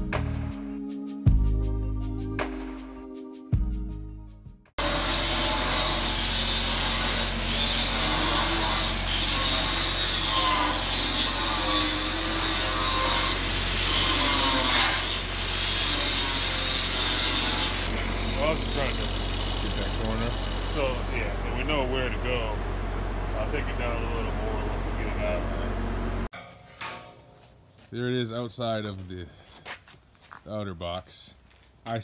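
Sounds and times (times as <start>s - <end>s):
angle grinder grinding steel: 4.8s - 22.4s.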